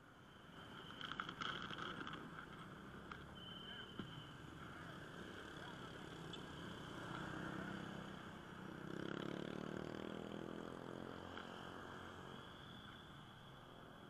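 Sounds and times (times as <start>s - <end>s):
motorcycle engines passing: 4.6s - 12.6s.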